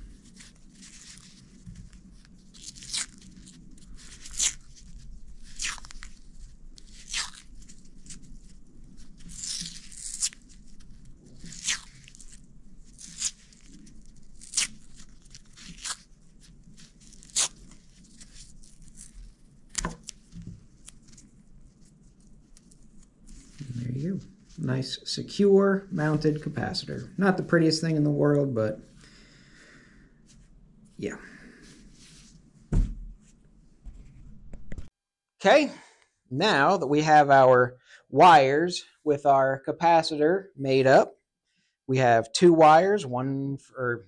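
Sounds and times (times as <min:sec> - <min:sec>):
electrical tape peeling off roll: 0:02.2 - 0:21.4.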